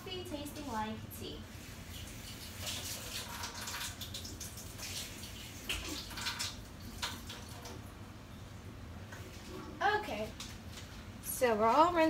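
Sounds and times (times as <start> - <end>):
water running from a tap: 1.4 - 7.8.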